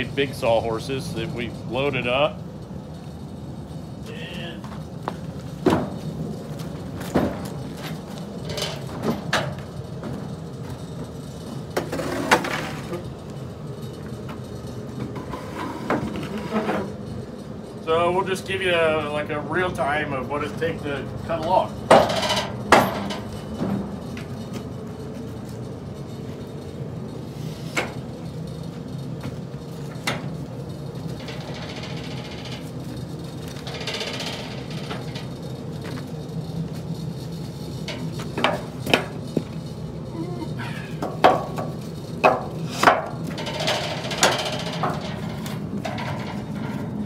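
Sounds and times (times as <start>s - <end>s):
metal clanks and knocks: 5.6s - 10.8s, 21.4s - 24.6s, 31.1s - 32.8s, 33.5s - 36.0s, 37.8s - 39.6s, 41.0s - 47.0s.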